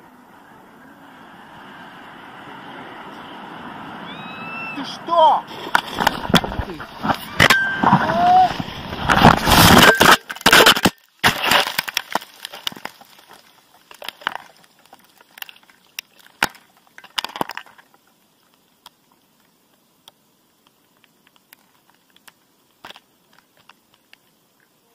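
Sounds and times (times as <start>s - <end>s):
leaves rustling: 0.0s - 24.9s
twigs crunching and cracking: 5.5s - 19.0s, 20.9s - 24.3s
faint clicks: 17.7s - 24.8s.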